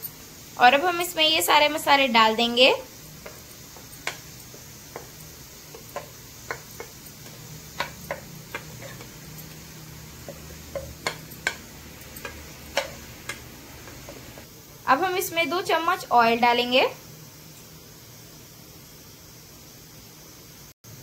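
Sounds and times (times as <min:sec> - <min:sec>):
spoon and bowls knocking on metal: 0:05.7 - 0:09.6, 0:10.2 - 0:14.2.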